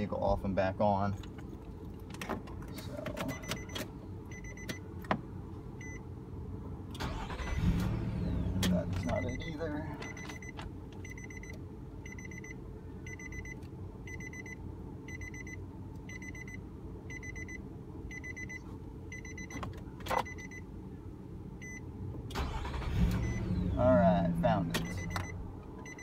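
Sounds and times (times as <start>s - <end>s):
steady low rumble: 0.0s - 26.0s
car warning chime: 3.2s - 4.9s, 8.5s - 20.6s, 22.4s - 26.0s.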